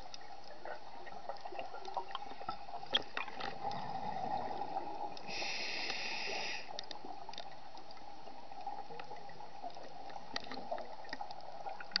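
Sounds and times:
hissing regulator breath: 0:05.3 - 0:06.8.

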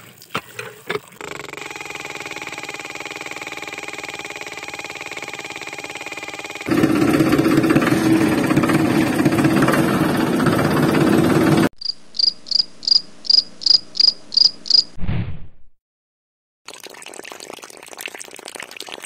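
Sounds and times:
toy tractor motor humming: 0:01.2 - 0:11.7
cricket chirping: 0:11.8 - 0:15.0.

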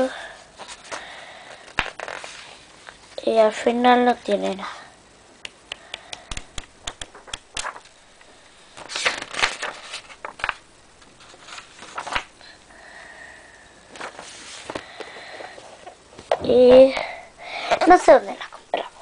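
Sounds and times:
paper pages rustling: 0:00.6 - 0:03.2, 0:06.3 - 0:08.0, 0:08.7 - 0:12.3, 0:13.9 - 0:17.0.

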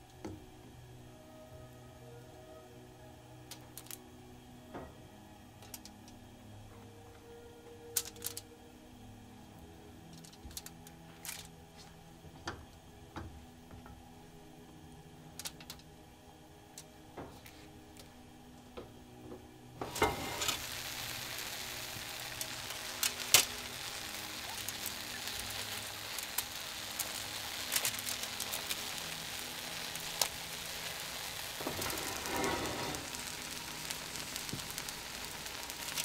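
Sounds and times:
vegetables sizzling and crackling: 0:03.3 - 0:04.1, 0:19.7 - 0:36.0
light clicks on foil pan: 0:08.0 - 0:08.4, 0:15.4 - 0:15.9.

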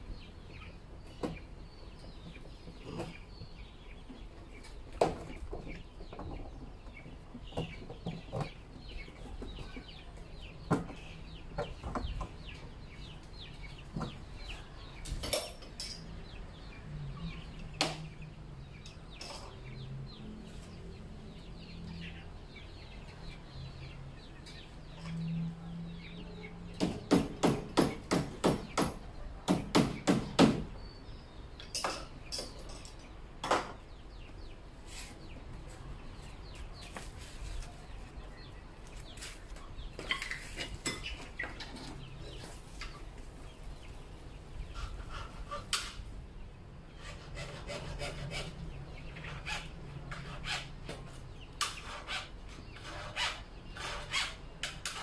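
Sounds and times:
chickens clucking: 0:00.1 - 0:15.1, 0:33.8 - 0:46.4.

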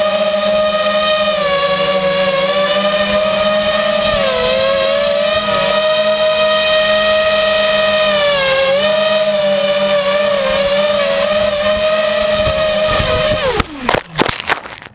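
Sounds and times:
drone motors and propellers whining: 0:00.0 - 0:14.9.

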